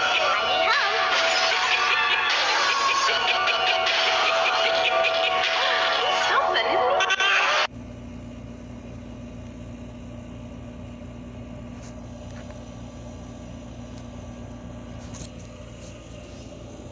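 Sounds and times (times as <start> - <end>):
low hum: 7.7 - 16.9.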